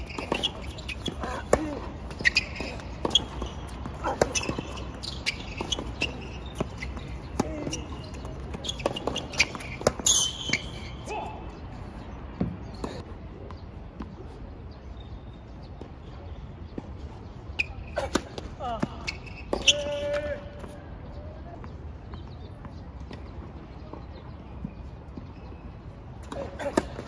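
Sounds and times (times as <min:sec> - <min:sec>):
tennis ball bouncing on court: 0:00.0 - 0:10.9
tennis ball struck by rackets: 0:00.0 - 0:10.9.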